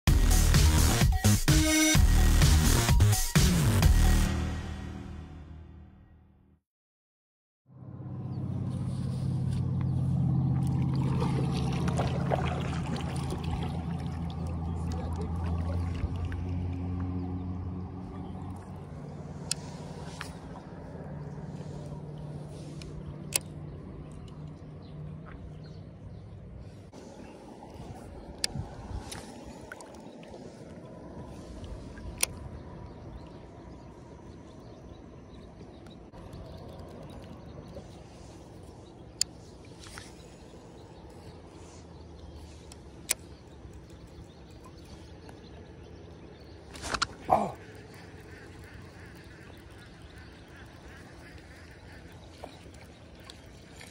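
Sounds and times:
small boat motor humming: 0:07.8 - 0:53.9
water splashing against hull: 0:10.3 - 0:34.8, 0:35.4 - 0:53.9.

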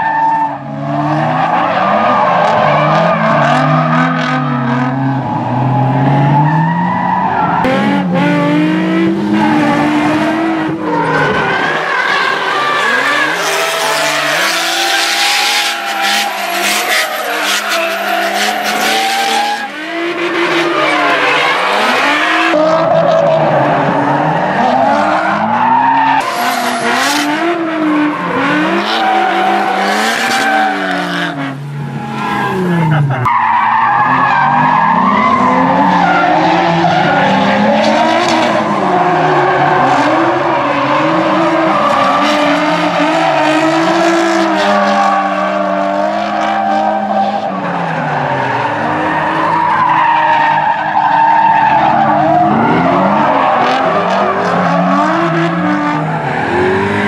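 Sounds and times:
car engines revving: 0:00.0 - 0:57.0
tyres squealing: 0:11.0 - 0:19.7.

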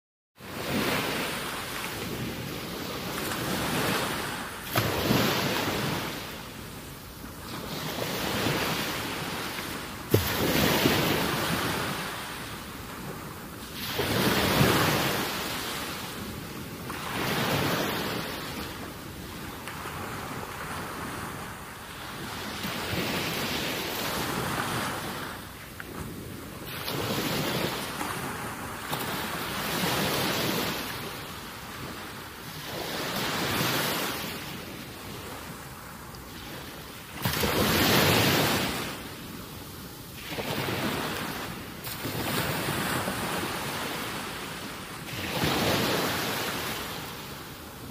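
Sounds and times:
water at the shore: 0:00.4 - 0:47.9
wind: 0:00.4 - 0:47.9.

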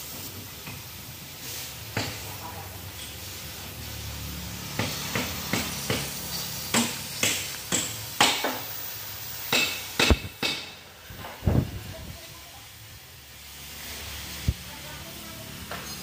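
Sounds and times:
cutting torch hissing: 0:00.0 - 0:16.0
sharp metallic knocks: 0:04.8 - 0:08.6, 0:09.5 - 0:10.8.

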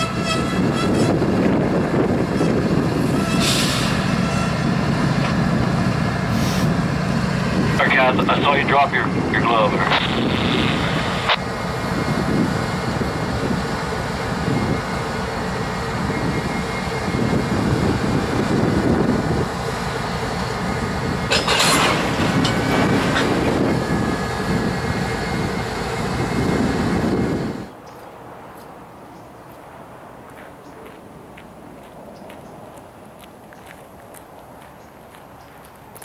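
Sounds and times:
diesel locomotive engine: 0:00.0 - 0:36.0
wheels rumbling on rail: 0:00.0 - 0:36.0
steady whine: 0:07.1 - 0:27.7.

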